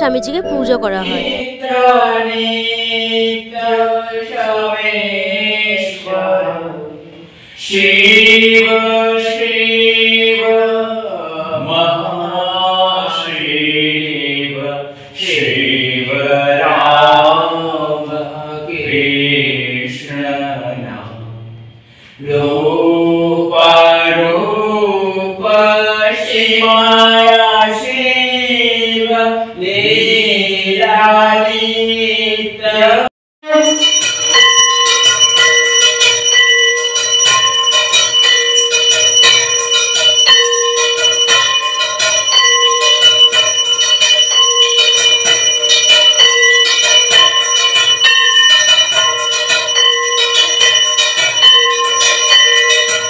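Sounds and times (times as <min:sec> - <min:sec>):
voices singing a chant: 0:00.0 - 0:21.2, 0:22.2 - 0:33.1
hand bell ringing fast: 0:33.5 - 0:53.0.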